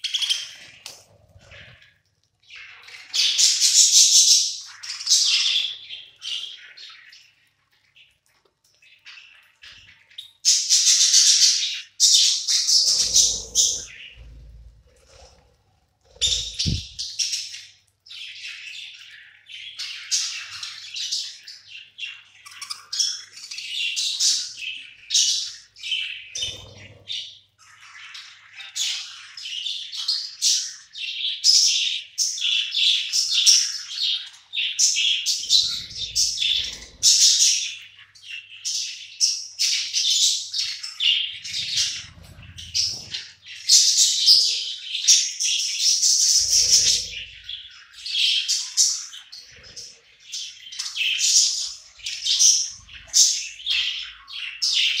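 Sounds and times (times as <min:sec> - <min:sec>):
budgerigars chattering and chirping: 0:10.5 - 0:15.4, 0:16.1 - 0:17.6, 0:19.8 - 0:55.0.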